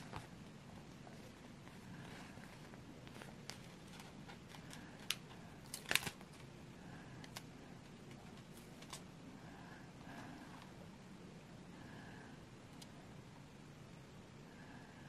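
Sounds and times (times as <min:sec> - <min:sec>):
sticker peeling crackles: 0:01.0 - 0:06.5
sticker sheet crinkling: 0:01.0 - 0:06.5.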